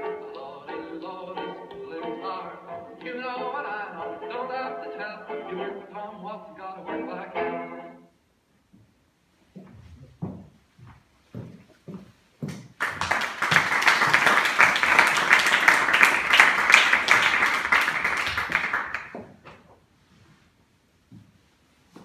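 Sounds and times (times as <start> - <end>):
audience applauding: 12.8 - 19.2.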